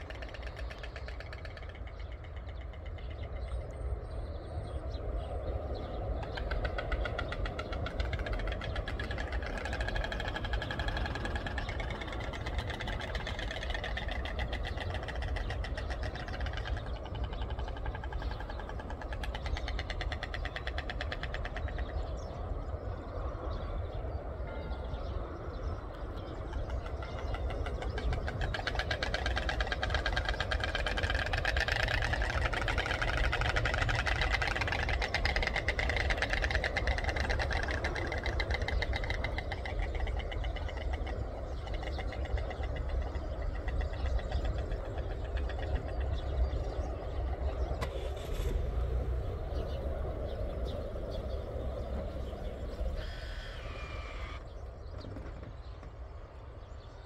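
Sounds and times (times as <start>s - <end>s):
storks clattering bills: 26.7s - 46.2s.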